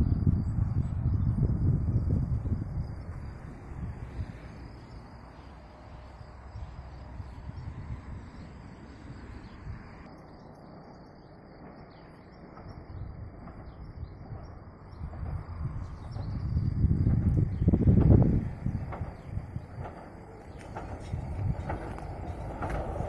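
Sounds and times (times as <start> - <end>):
faint steady high trill: 0.0 - 15.0
small birds chirping: 4.6 - 22.6.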